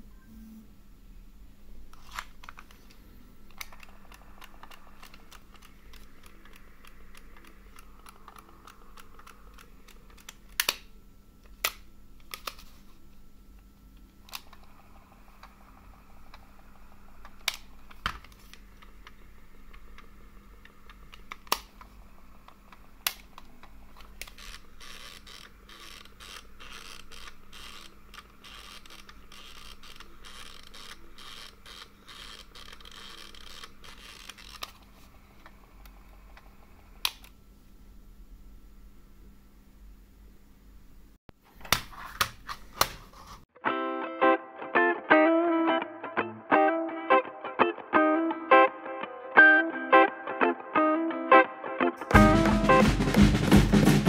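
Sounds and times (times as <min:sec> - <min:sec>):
cassette mechanism running: 0:01.7 - 0:38.5
sharp clicks and crackle: 0:01.9 - 0:12.7, 0:14.0 - 0:37.4.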